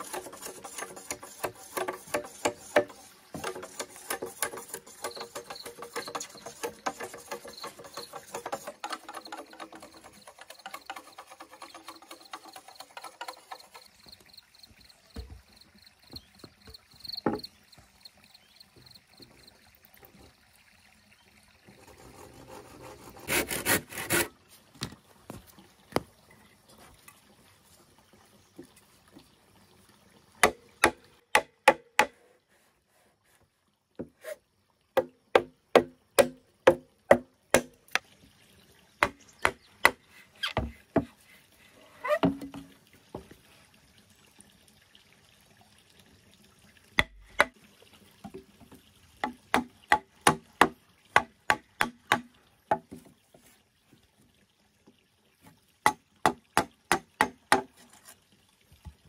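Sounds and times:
rasping scrape: 0:00.0 - 0:13.6
bamboo being struck: 0:30.4 - 0:32.2, 0:35.4 - 0:38.0, 0:47.0 - 0:47.6.

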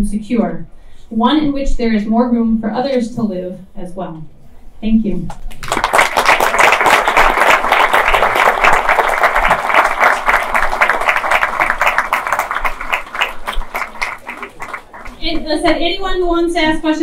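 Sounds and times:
audience applauding: 0:05.5 - 0:15.4.

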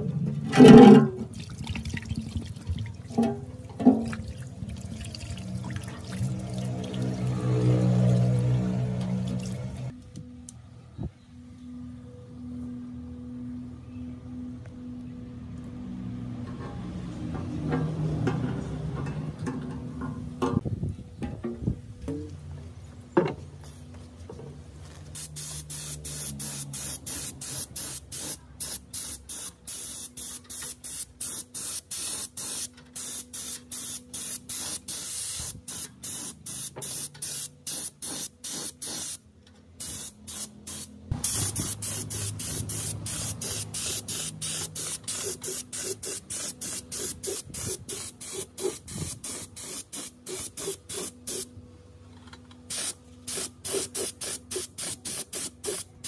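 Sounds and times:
spray gun hissing in bursts: 0:25.2 - 0:39.2, 0:39.8 - 0:51.5, 0:52.7 - 0:56.0.

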